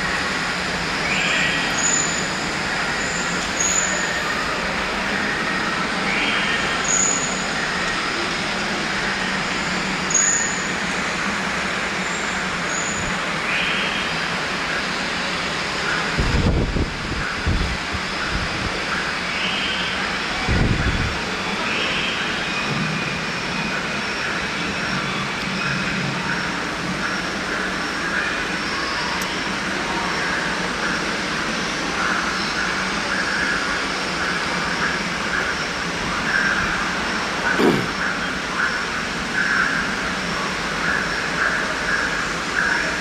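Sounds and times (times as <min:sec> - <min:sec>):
loud rushing noise: 0:14.1 - 0:18.8.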